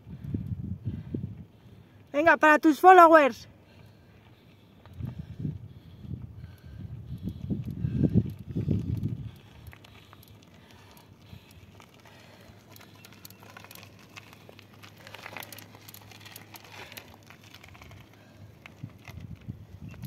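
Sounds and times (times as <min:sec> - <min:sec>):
bike tyres crunching on gravel: 0:07.5 - 0:20.0.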